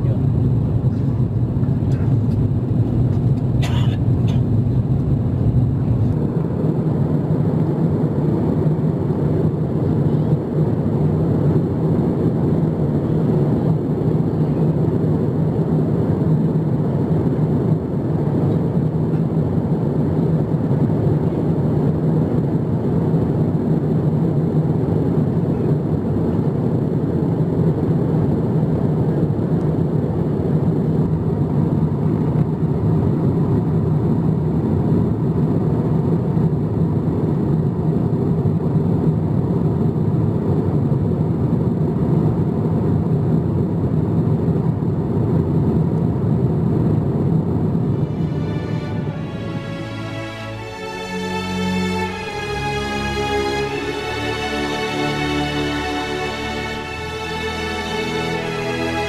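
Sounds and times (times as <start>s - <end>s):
airflow past fuselage: 0.0s - 25.3s, 46.1s - 59.0s
constant low hum: 0.0s - 59.0s
jet engines rumbling: 0.0s - 59.0s.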